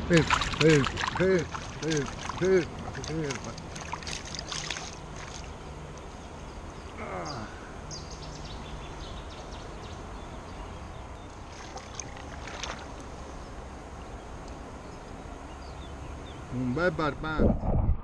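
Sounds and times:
small water splashes: 0.0 - 6.3, 11.2 - 13.3
river water rushing: 0.0 - 6.8, 11.3 - 14.7.

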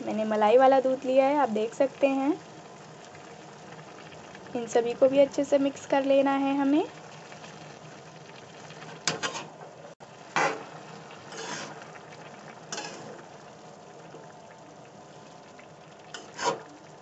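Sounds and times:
metal spoon scraping metal pan: 9.0 - 9.6, 11.3 - 11.8, 12.7 - 13.2, 16.2 - 16.7.

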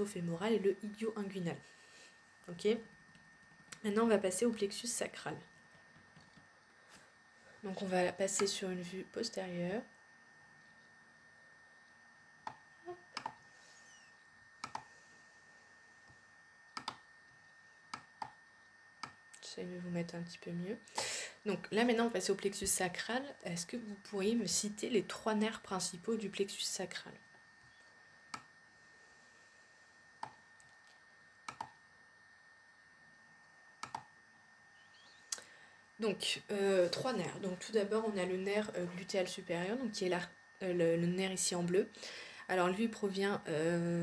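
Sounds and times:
faint hiss with high tone: 6.5 - 44.0
computer mouse clicking: 13.2 - 13.4, 14.6 - 14.9, 16.7 - 17.0, 19.0 - 19.2, 31.4 - 31.8, 33.8 - 34.1.

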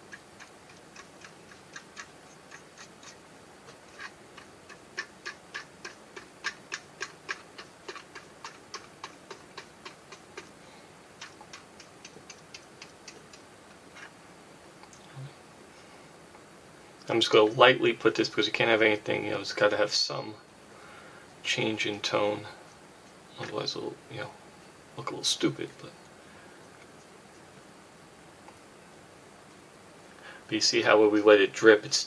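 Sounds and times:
rapid regular ticking: 0.0 - 14.1.

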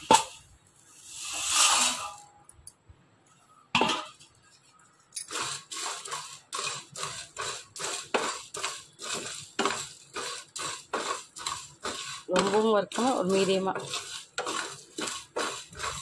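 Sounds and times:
spatula scraping pan: 1.0 - 2.4, 3.8 - 16.0
spices clattering into pan: 5.1 - 15.9.

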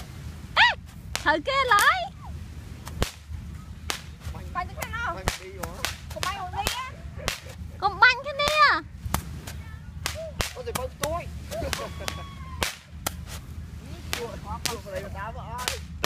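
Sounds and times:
excited voices squealing: 0.6 - 0.8, 11.5 - 12.7
fireworks cracking: 0.8 - 16.0.

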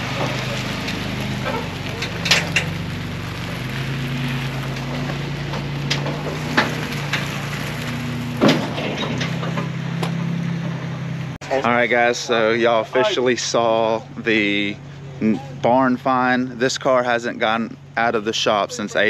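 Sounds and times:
sharp knocks and crunches: 0.0 - 11.4
truck engine idling: 0.0 - 19.0.

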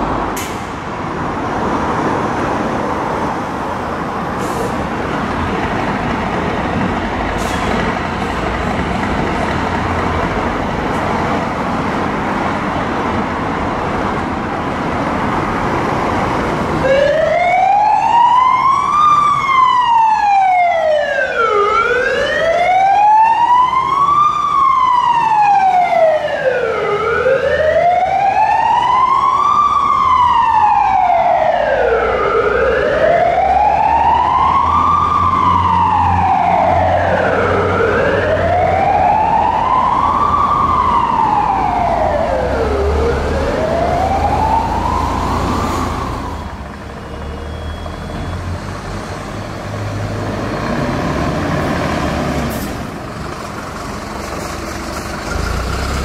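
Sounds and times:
fire truck siren wailing: 13.5 - 54.2.

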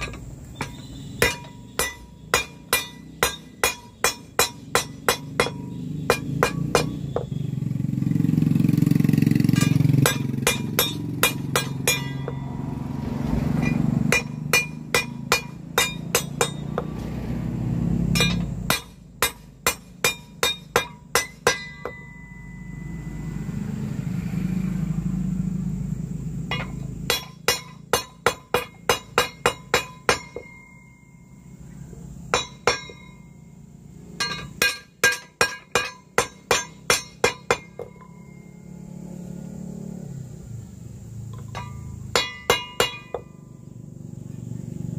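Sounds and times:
mallet clinking on brass propeller: 0.0 - 7.3, 9.4 - 12.7, 13.6 - 16.9, 18.0 - 22.9, 26.5 - 31.4, 32.3 - 33.4, 34.1 - 38.7, 41.3 - 43.5.

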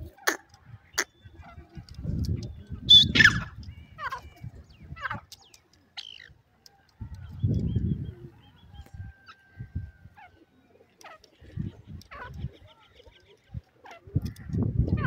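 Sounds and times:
sharp clicks: 5.2 - 7.7.

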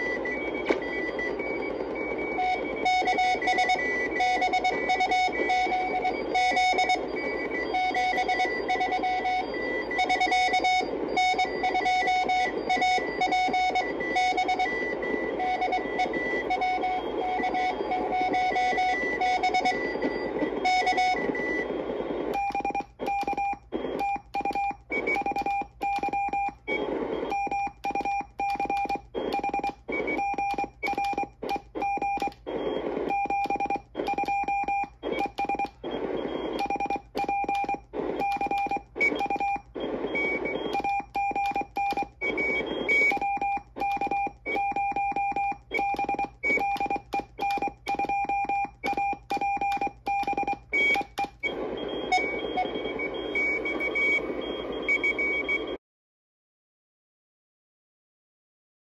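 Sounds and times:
morse code tones: 0.0 - 55.8
receiver hiss: 0.0 - 55.8.

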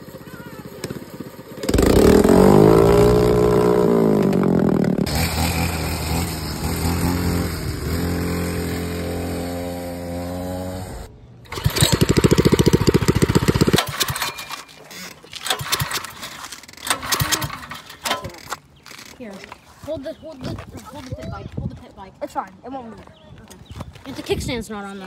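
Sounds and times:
pit bike engine running: 0.0 - 14.2
go-kart engine running: 0.0 - 14.6, 15.4 - 18.4.

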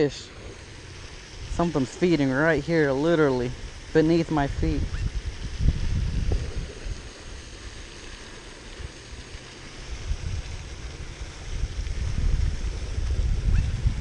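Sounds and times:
fountain splashing: 0.0 - 14.0
wind buffeting microphone: 1.1 - 7.4, 9.8 - 14.0.

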